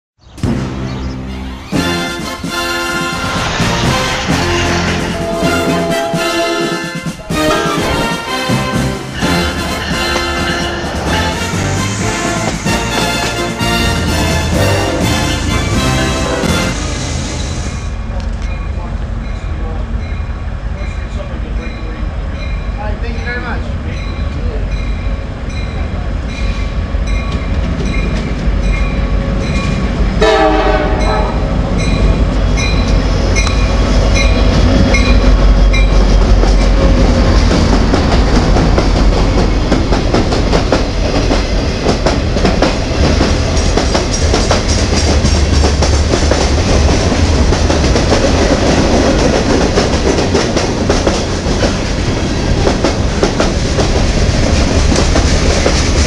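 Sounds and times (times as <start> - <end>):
diesel locomotive rumble: 0.3 - 56.0
train horn blast: 0.4 - 17.0, 30.2 - 31.6
train bell dinging: 18.1 - 36.9
boxcars rattling past: 24.5 - 56.0.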